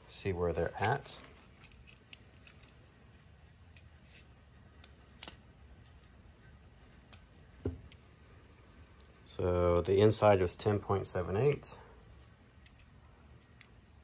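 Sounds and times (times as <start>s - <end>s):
faint metallic clicks and taps: 12.6s - 13.9s.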